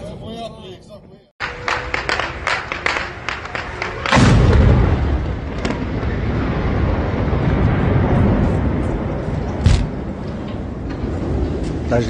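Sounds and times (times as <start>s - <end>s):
sharp crack: 2.0s - 6.3s
explosion rumble: 4.0s - 12.0s.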